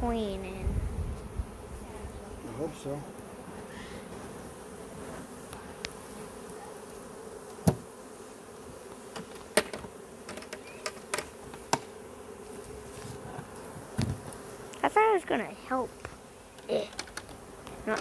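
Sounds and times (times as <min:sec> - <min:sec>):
bees humming: 0:00.0 - 0:18.0.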